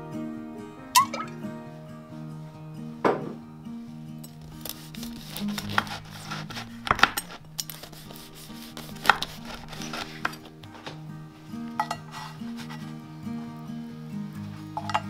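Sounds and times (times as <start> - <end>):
soft background music: 0.0 - 15.0
knife cutting crusty bread: 4.4 - 11.0.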